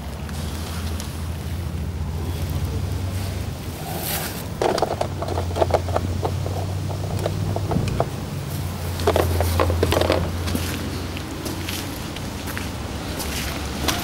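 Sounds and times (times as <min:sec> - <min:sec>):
low engine drone: 0:00.0 - 0:13.8
light clicks and knocks: 0:04.6 - 0:10.8.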